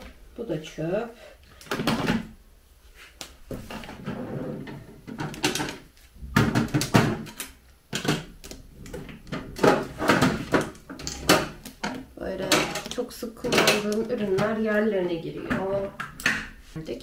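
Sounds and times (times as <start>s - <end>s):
drawer sliding: 3.5s - 7.4s, 8.2s - 11.6s.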